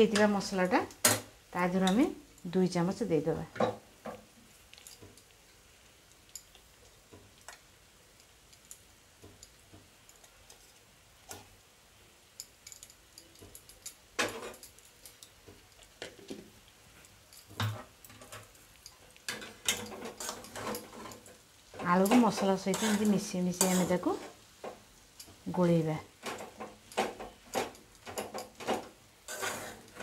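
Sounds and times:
potatoes being mashed in bowl: 18.6s - 30.0s.

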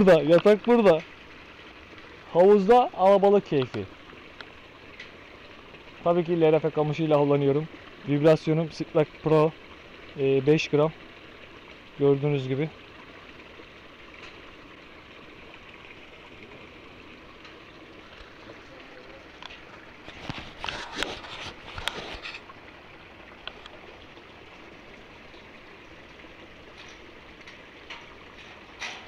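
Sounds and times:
water trickling into pool: 0.0s - 29.0s
sharp clicks and knocks: 26.7s - 29.0s.

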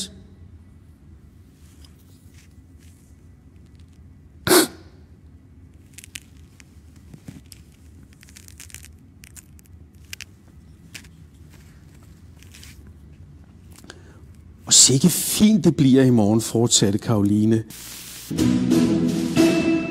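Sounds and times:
faint short breaths: 13.8s - 14.4s.

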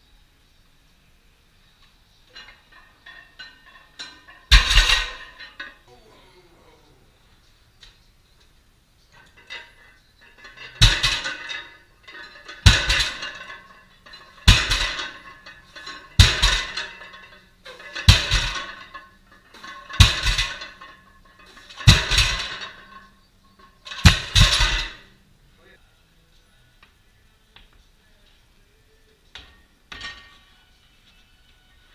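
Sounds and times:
barbell plates clanking on floor: 2.3s - 5.8s, 9.2s - 25.1s.

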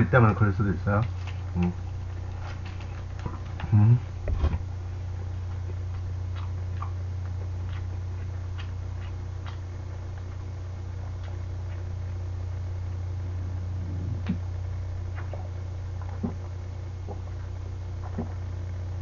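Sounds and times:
low voice hum: 0.0s - 2.0s, 3.2s - 19.0s
air conditioner hum: 0.0s - 19.0s
person swallowing with gulping clicks: 13.8s - 14.4s, 15.1s - 18.5s.

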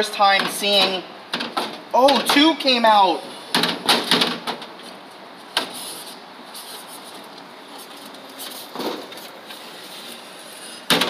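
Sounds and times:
steady background noise: 0.0s - 11.0s
vending machine flap door knocking: 3.6s - 4.7s.

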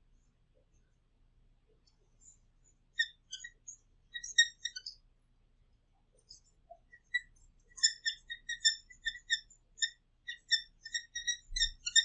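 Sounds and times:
marker squeaking on whiteboard: 3.0s - 5.0s, 6.3s - 12.0s.

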